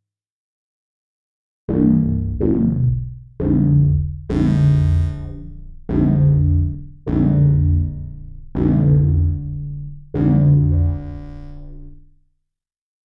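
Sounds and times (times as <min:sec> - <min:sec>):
low synthesizer bass notes: 0:01.7 - 0:12.1.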